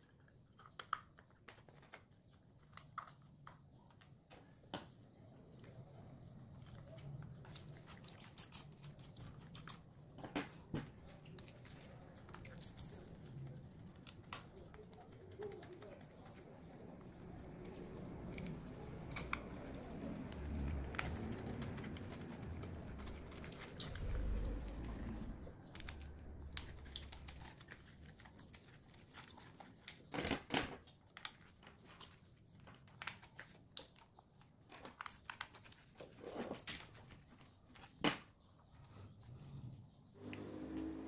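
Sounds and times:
rustling of gloved hands: 0:00.0 - 0:30.2.

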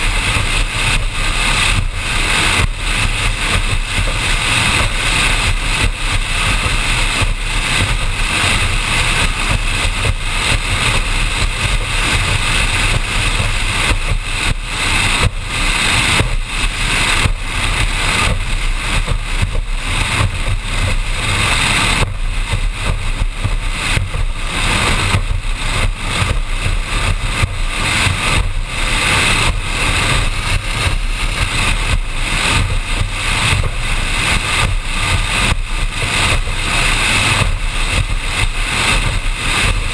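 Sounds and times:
powerboat engine: 0:00.0 - 0:39.9
rushing water: 0:00.0 - 0:39.9
rushing wind: 0:00.0 - 0:39.9.

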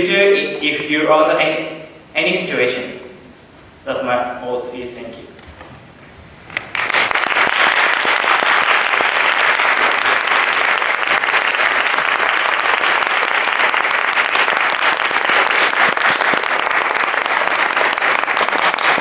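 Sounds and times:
audience applauding: 0:06.5 - 0:19.0.

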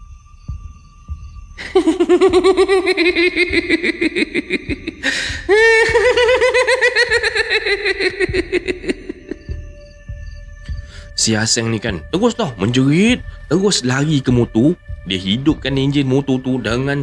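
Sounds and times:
eerie cackling laugh: 0:01.6 - 0:09.6.

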